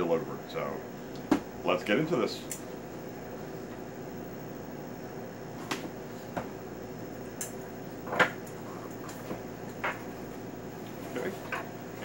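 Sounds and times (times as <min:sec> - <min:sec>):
background hum: 0:00.0 - 0:12.0.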